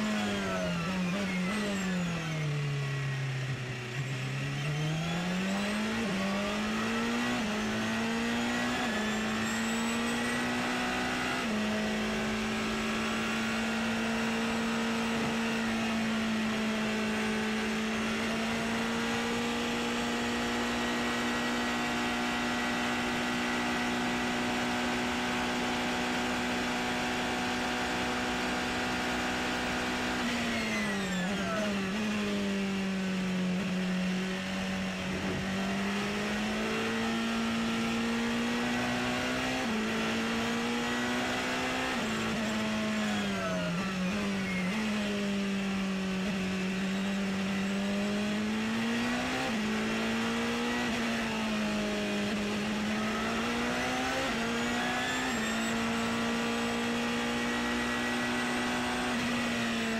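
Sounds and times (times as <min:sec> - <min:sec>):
race car engine revving: 0:04.1 - 0:59.9.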